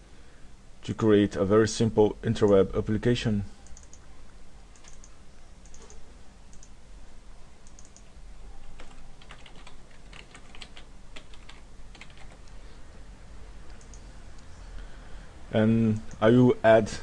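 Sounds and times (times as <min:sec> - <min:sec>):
low steady hum: 0:00.0 - 0:17.0
keyboard key clicks: 0:04.8 - 0:06.7.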